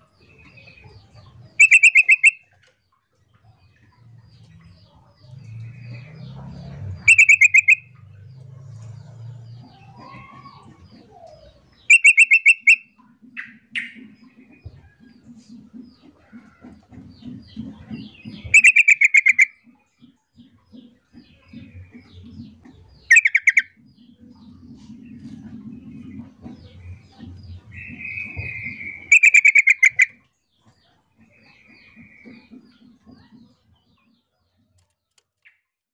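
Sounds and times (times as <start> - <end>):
bird chattering calls: 0.5 - 2.5, 6.9 - 8.0, 9.9 - 14.6, 17.2 - 19.7, 21.4 - 30.2
bird harsh buzzy calls: 1.6 - 2.4, 7.0 - 7.9, 11.9 - 14.1, 18.4 - 19.6, 23.0 - 23.7, 27.7 - 30.2
bird sharp rapid notes: 1.6 - 2.4, 7.0 - 8.0, 11.9 - 14.2, 18.3 - 19.6, 27.7 - 30.2.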